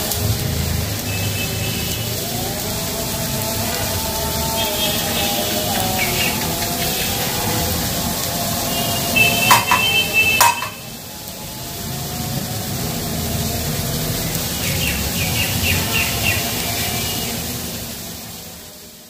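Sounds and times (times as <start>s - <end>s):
oil sizzling in a pan: 0.0s - 19.0s.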